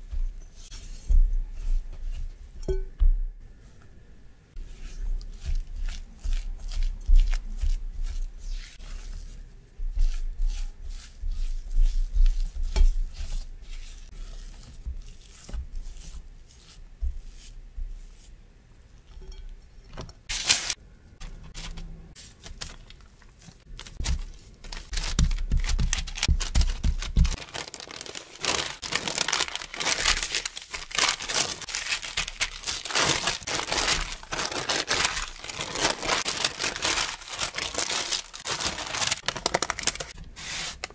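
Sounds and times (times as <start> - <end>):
parchment paper crinkling: 20.3 - 40.9.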